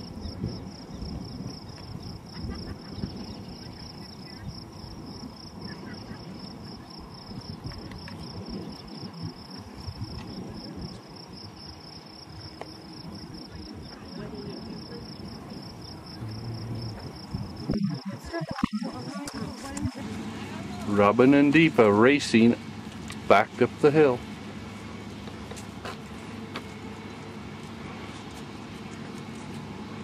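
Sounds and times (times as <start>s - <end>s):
high-pitched insect trill: 0.0s - 19.8s
low rumble on microphone: 13.0s - 21.3s.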